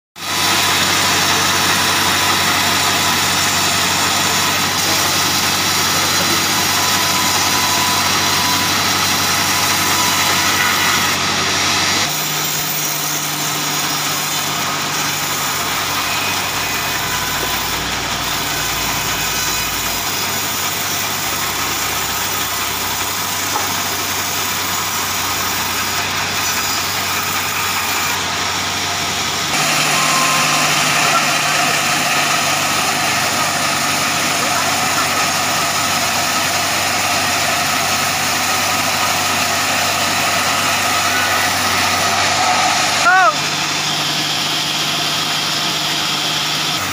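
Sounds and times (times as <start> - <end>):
band sawmill machine drone: 0.2 - 46.9.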